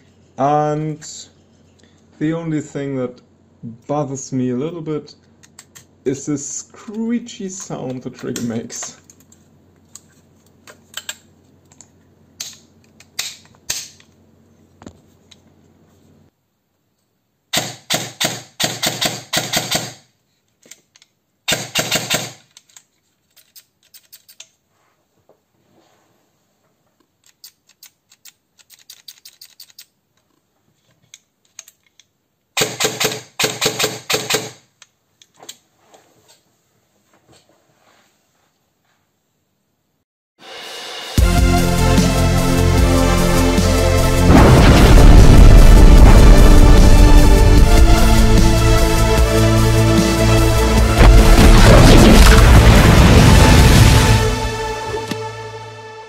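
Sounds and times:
airsoft gun full-auto bursts: 17.5 - 20.0, 21.5 - 22.4, 32.6 - 34.6.

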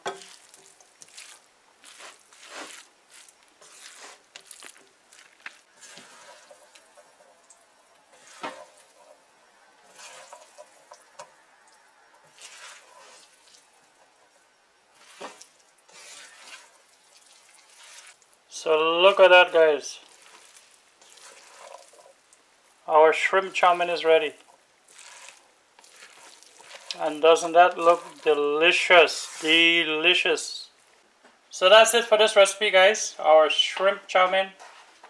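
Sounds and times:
spatula scraping noodles in a wok: 0.0 - 11.4, 12.2 - 14.3, 14.9 - 18.2, 20.0 - 22.2, 24.8 - 30.2.

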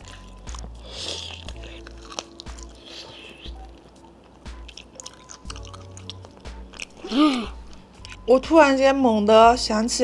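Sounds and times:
wet chewing: 0.0 - 8.3.

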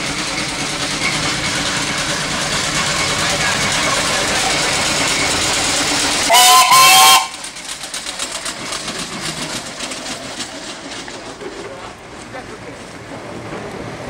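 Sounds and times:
steam engine running: 0.0 - 14.0
steam whistle blasts: 6.3 - 7.4.

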